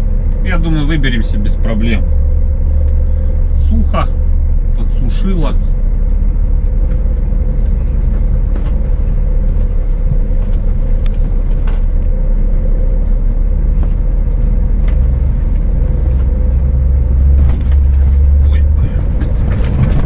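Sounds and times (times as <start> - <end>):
truck engine rumbling: 0.0 - 20.0
knocks and rattles: 14.8 - 20.0.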